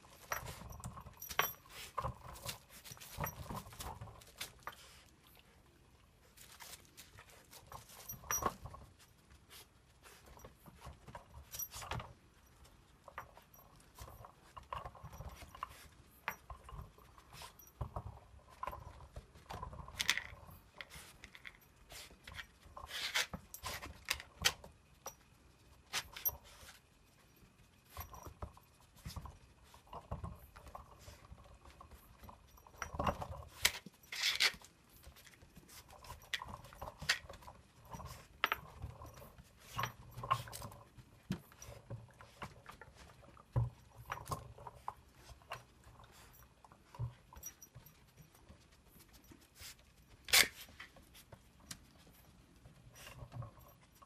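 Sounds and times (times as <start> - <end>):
toy clicks knocks and rattles: 27.9 - 49.2.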